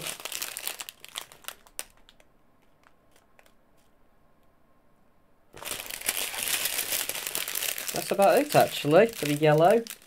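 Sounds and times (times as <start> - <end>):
plastic bags crinkling: 0.0 - 3.5, 5.5 - 10.0.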